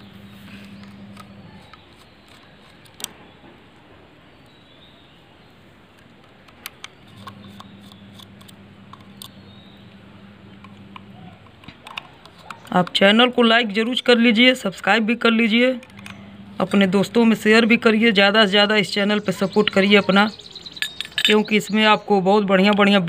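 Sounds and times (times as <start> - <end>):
faint low hum: 0.0 - 3.7, 6.6 - 13.5, 15.5 - 21.4
screwdriver clicking on metal: 6.4 - 9.4, 10.6 - 13.1, 15.8 - 16.9.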